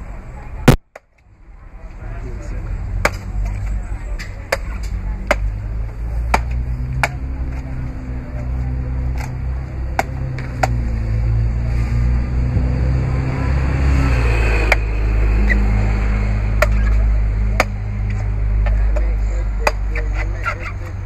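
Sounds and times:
steady low rumble: 1.4 - 19.9
machete chopping coconut: 3.0 - 3.3, 4.5 - 5.6, 6.3 - 7.3, 9.2 - 10.8, 16.6 - 17.8, 18.6 - 20.0.

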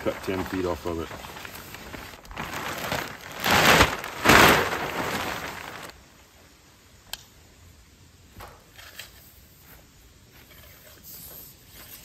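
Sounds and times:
plastic sheet swishing flaps: 0.0 - 6.0
plastic sheet rustling and crinkling: 0.0 - 6.1
click: 7.1 - 7.3.

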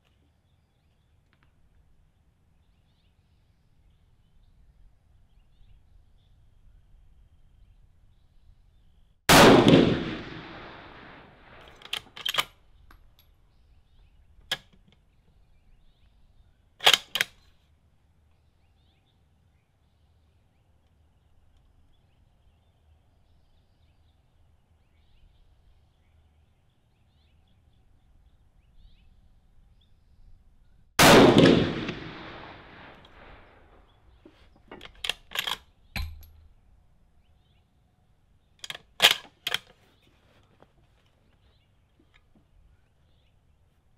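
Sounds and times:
rifle shots: 9.3 - 12.5, 31.0 - 33.9
rifle bolt metallic clicks: 11.6 - 13.3, 14.4 - 15.0, 16.8 - 17.5, 34.7 - 36.4, 38.6 - 39.8.

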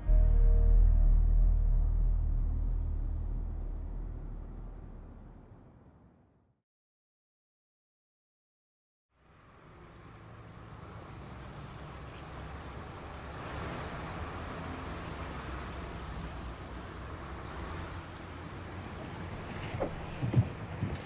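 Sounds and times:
low rumble: 0.0 - 6.4.

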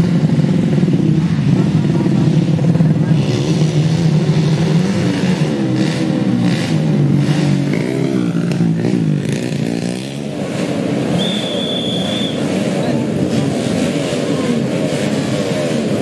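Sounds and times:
dirt bike engines revving: 0.0 - 16.0.

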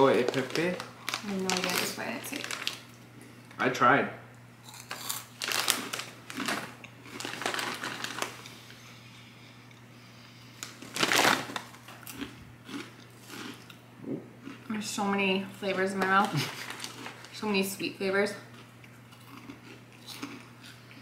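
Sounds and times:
crunching snacks: 0.0 - 2.9, 4.6 - 8.5, 10.6 - 13.8, 16.2 - 17.4, 18.5 - 20.8
snack bag rustling and crinkling: 0.0 - 3.0, 4.7 - 8.6, 10.6 - 13.6, 15.9 - 17.4.

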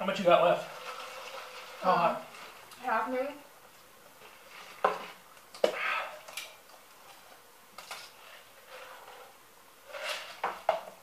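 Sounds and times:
paper cup rustling: 0.6 - 2.7
slurping through a straw: 0.7 - 1.9.

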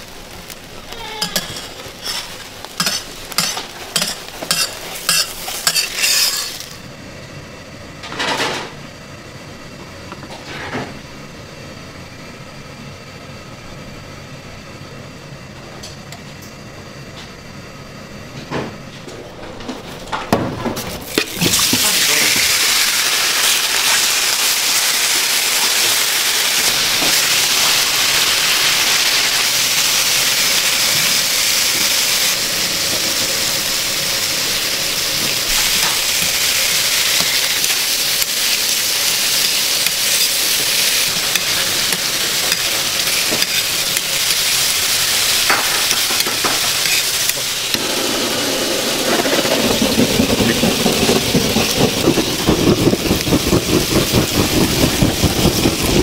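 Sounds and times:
egg batter sizzling on griddle: 0.0 - 7.0, 20.8 - 56.0.

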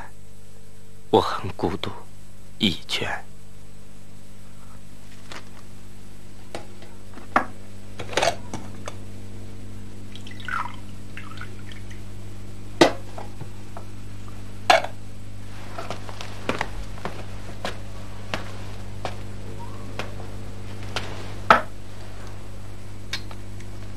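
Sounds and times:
low hum: 0.0 - 23.9
water pouring into cup: 10.1 - 12.0.

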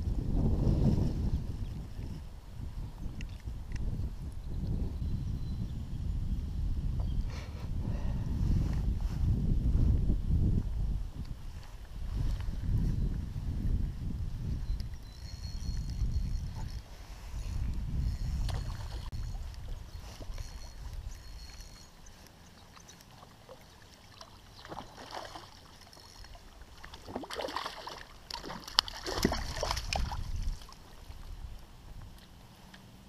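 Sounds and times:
low rumble on microphone: 0.0 - 22.2
fish splashing in water: 22.7 - 31.0.

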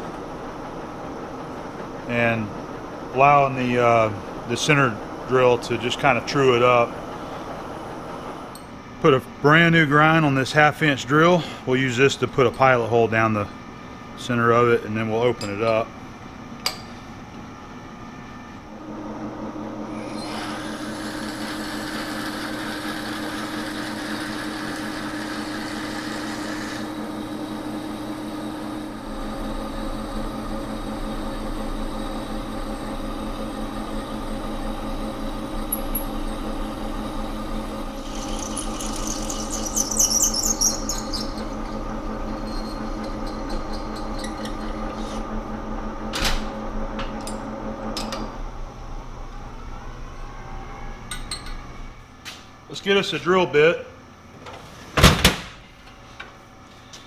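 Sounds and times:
lathe running: 18.7 - 48.3
drill squealing and chattering: 20.0 - 27.0, 38.0 - 44.5.

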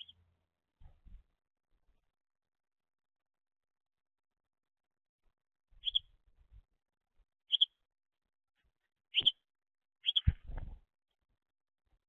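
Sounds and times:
sparrow cheeping: 0.0 - 0.2, 5.8 - 6.1, 7.5 - 7.8, 9.1 - 10.4.

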